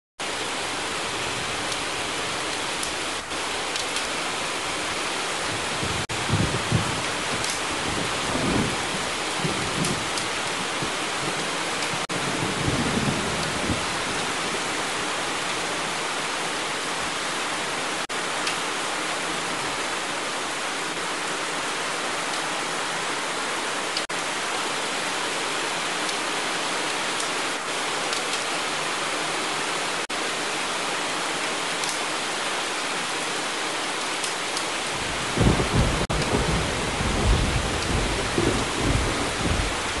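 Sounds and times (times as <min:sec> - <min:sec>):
heavy rain pouring: 0:00.2 - 0:40.0
thunder rumbling: 0:05.5 - 0:14.9, 0:35.0 - 0:40.0.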